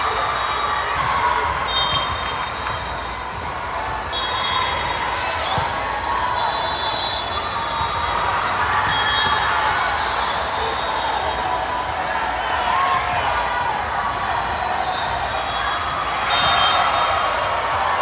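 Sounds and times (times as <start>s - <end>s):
spectator chatter: 0.0s - 18.0s
volleyball hits: 0.8s - 4.1s
sneakers squeaking on gym floor: 1.0s - 11.0s.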